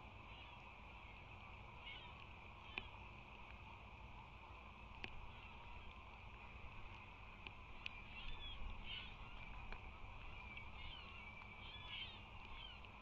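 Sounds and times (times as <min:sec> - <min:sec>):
steady low rumble: 0:00.0 - 0:13.0
sharp ticks: 0:04.9 - 0:05.2.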